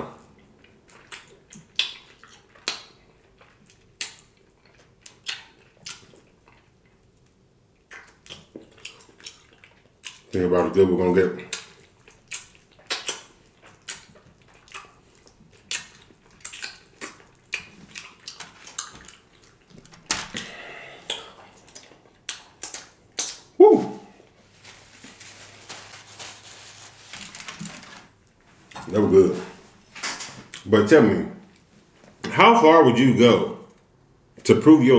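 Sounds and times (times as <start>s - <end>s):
chewing and lip-smacking: 0.2s - 10.4s, 11.4s - 23.5s
person humming: 23.6s - 24.2s
paper napkin rustling: 24.3s - 30.0s.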